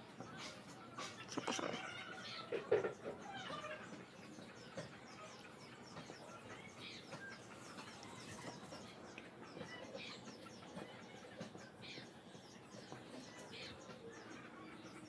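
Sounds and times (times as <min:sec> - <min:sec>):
birds chirping faintly: 0:00.0 - 0:15.0
marker squeaking on whiteboard: 0:01.3 - 0:01.8.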